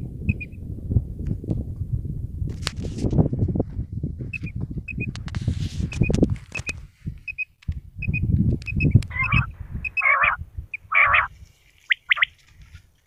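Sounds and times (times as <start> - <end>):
sharp chirps: 7.3 - 11.3
harsh noisy bird calls: 9.1 - 11.3
quail calling in high pips: 9.1 - 11.3, 11.9 - 12.4.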